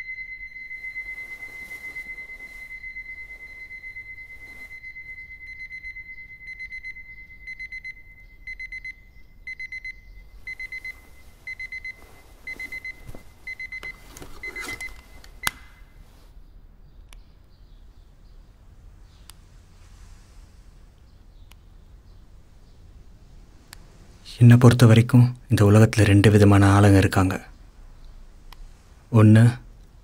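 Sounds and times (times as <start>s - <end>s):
alarm clock beeping: 0.0s - 15.8s.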